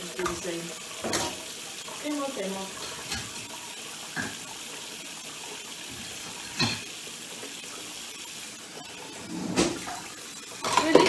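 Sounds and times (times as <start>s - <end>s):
tap running into sink: 0.2s - 1.5s, 4.1s - 4.6s, 9.2s - 11.0s.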